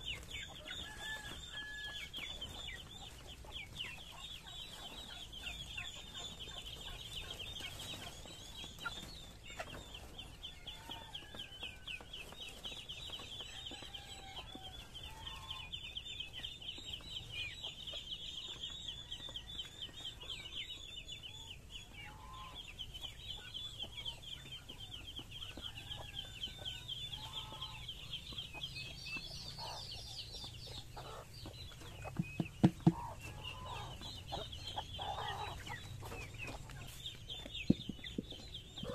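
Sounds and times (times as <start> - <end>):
chickens clucking: 0.0 - 38.9
sharp knocks: 32.2 - 33.1.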